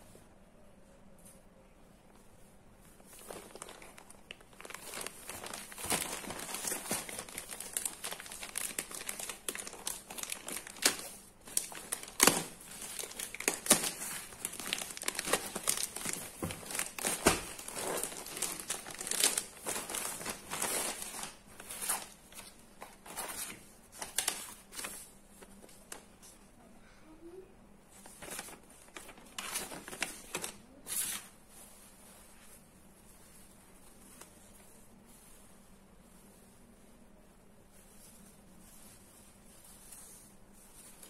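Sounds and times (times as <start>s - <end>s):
plastic bag crinkling: 2.8s - 26.2s, 28.0s - 32.0s.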